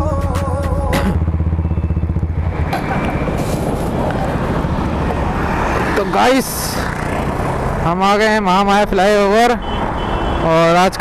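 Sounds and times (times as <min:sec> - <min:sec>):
motorcycle engine running: 0:00.0 - 0:04.8, 0:06.5 - 0:07.9
road and wind noise: 0:00.0 - 0:11.0.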